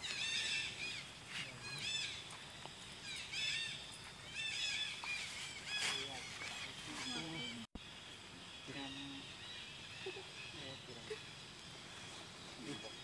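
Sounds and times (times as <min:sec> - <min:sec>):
high-pitched chirping calls: 0:00.0 - 0:02.4.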